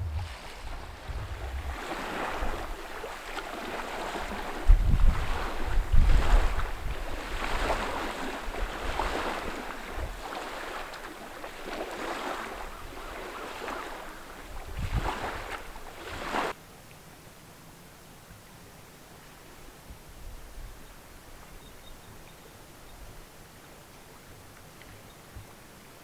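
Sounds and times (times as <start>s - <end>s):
waves lapping against rocky shore: 0.0s - 16.6s
wind rumbling on microphone: 0.0s - 16.6s.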